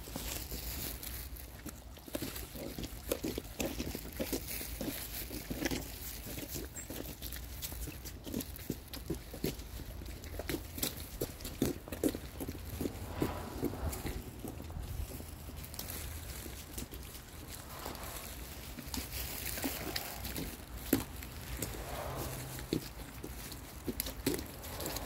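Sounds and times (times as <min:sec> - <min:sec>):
dog sniffing: 0:10.5 - 0:25.0.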